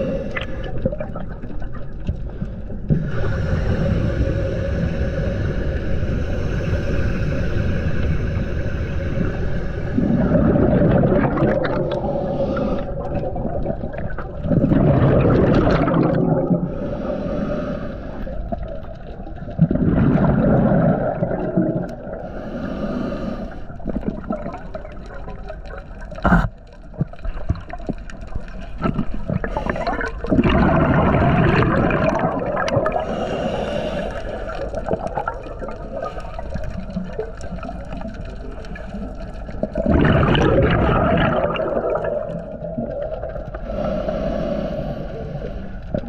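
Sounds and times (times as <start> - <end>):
regulator hissing inhale: 0.0 - 0.8, 3.0 - 10.3, 12.0 - 13.2, 16.7 - 18.4, 22.2 - 23.8, 32.9 - 34.9, 43.5 - 46.0
bubbling exhale: 0.0 - 1.4, 2.3 - 25.4, 28.5 - 46.0.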